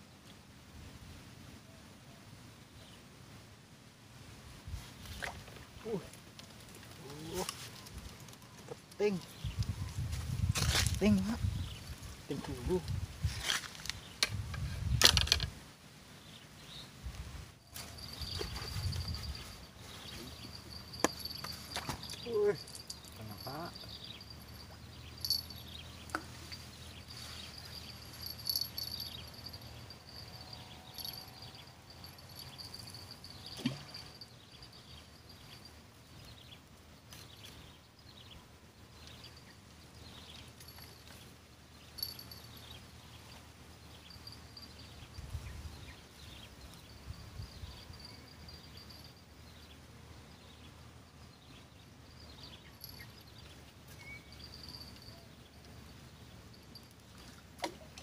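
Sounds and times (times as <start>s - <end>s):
insects chirping: 17.6s - 38.1s, 38.8s - 50.1s, 51.8s - 57.4s.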